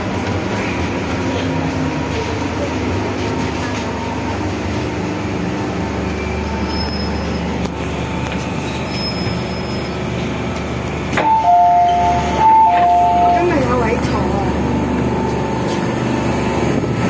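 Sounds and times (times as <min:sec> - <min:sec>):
train rumble and hiss: 0:00.0 - 0:17.0
high wheel squeals: 0:06.1 - 0:10.4.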